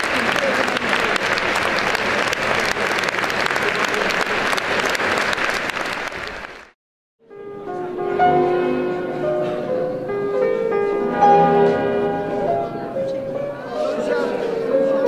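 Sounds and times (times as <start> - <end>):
audience applauding: 0.0 - 6.8
music: 7.2 - 15.0.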